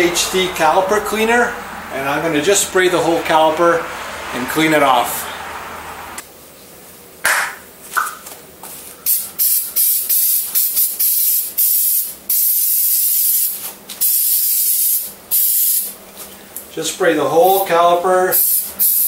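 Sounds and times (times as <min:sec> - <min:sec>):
aerosol spray hissing: 0:09.1 - 0:15.9, 0:18.3 - 0:19.0.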